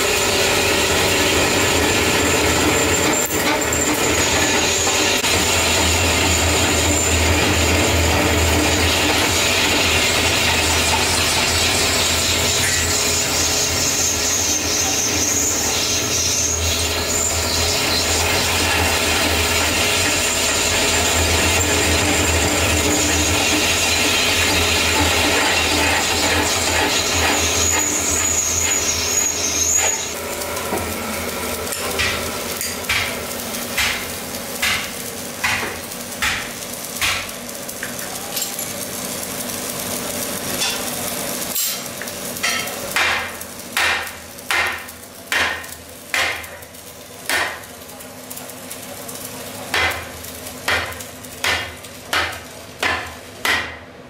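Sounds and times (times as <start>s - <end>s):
metal lathe cutting squeal: 0.0s - 30.4s.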